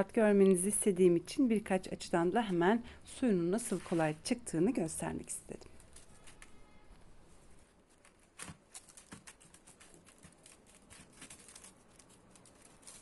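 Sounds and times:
paper towel rustling: 3.6s - 4.3s.

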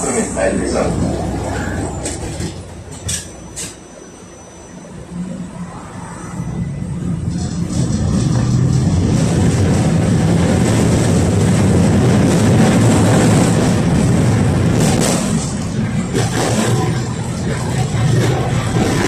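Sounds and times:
tram motor hum: 0.0s - 19.0s
wheels running on rails: 6.4s - 19.0s
clacks and rattles: 7.2s - 13.9s, 14.7s - 19.0s.

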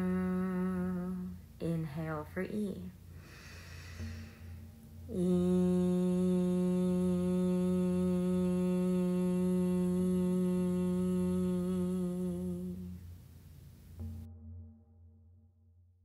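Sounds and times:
woman chanting long vowel: 0.0s - 2.9s, 5.1s - 13.0s.

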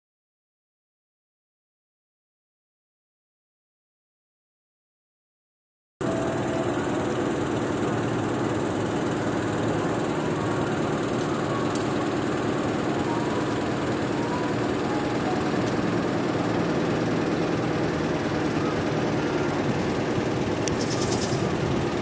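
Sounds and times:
engine running: 6.0s - 22.0s.

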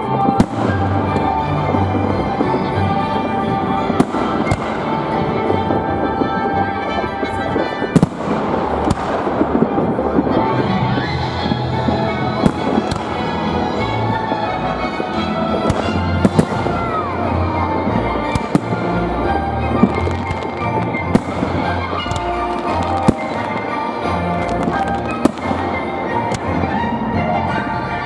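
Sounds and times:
fireworks bursting with bangs: 0.0s - 28.0s
music: 0.0s - 28.0s.

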